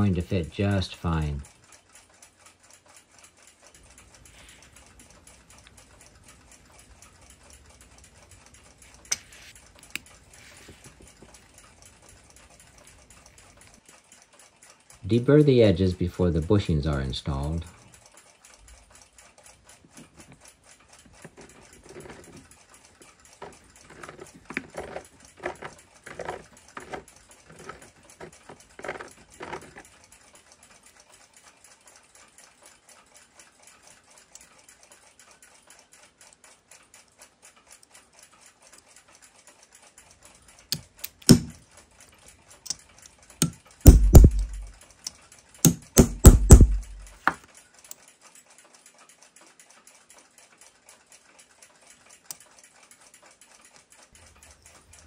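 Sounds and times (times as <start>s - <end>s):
metal parts knocking and rattling: 19.8s - 30.1s, 40.6s - 47.5s
deburring tool scraping brass: 23.4s - 29.8s
sharp click: 40.8s - 41.6s, 43.4s - 47.4s.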